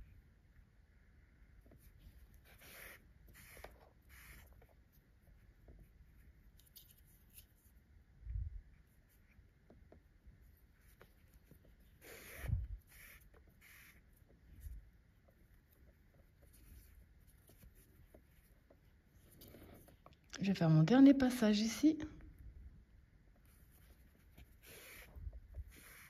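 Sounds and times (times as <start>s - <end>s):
yarn drawn through crochet: 1.6s - 7.9s, 8.7s - 20.2s, 23.3s - 26.0s.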